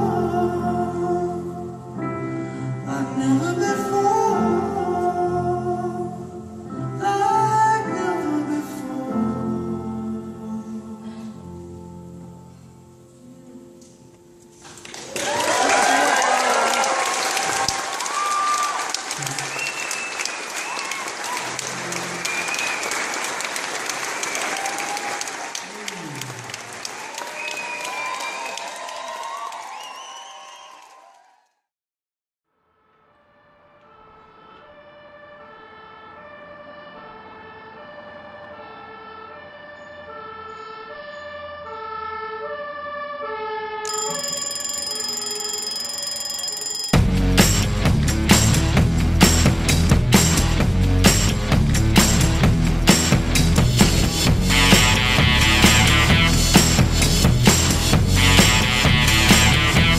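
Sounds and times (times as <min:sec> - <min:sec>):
audience applauding: 0:14.6 - 0:31.4
whistles: 0:18.5 - 0:21.4, 0:22.2 - 0:23.1, 0:24.2 - 0:24.9, 0:27.2 - 0:28.6, 0:29.5 - 0:31.1
high held tones: 0:43.9 - 0:47.2
pop song instrumental intro: 0:47.0 - 0:59.9.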